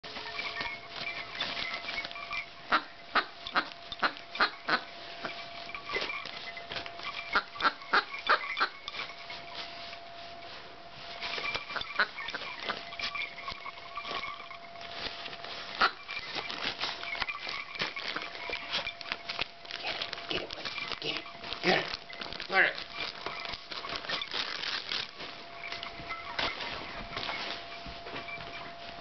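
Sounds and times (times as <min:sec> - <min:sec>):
dog tearing plastic bag and paper: 0:00.1 - 0:02.4, 0:11.1 - 0:27.8.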